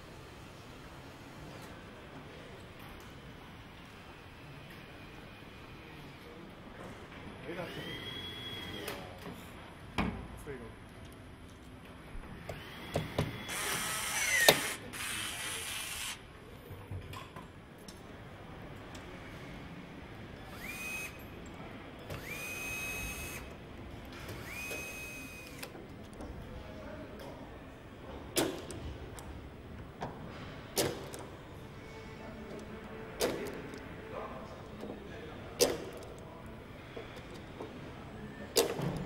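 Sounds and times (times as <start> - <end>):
cordless drill whining: 13.4 - 16.2, 20.5 - 21.2, 22.2 - 23.4, 24.4 - 25.6.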